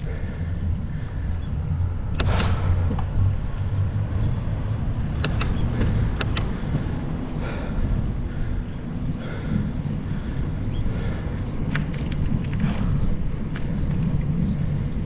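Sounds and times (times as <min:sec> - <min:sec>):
bicycle road rumble: 0:00.0 - 0:15.0
wind on microphone: 0:00.0 - 0:15.0
sharp clicks: 0:02.0 - 0:03.1, 0:05.0 - 0:06.6.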